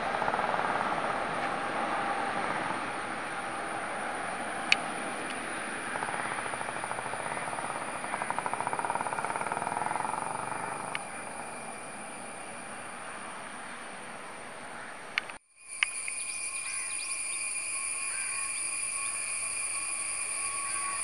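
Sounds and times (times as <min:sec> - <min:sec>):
jet engines roaring: 0:00.0 - 0:15.4.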